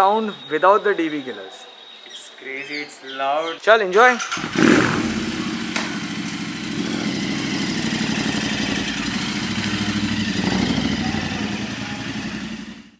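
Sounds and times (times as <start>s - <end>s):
motorcycle engine idling: 4.3s - 12.9s.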